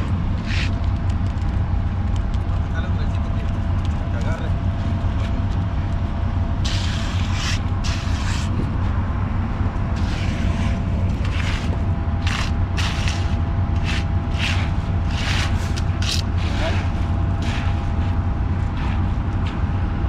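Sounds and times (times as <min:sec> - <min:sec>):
concrete mixer truck running: 0:00.0 - 0:20.0
shovels scraping concrete: 0:00.4 - 0:00.8, 0:06.6 - 0:08.6, 0:10.0 - 0:19.0.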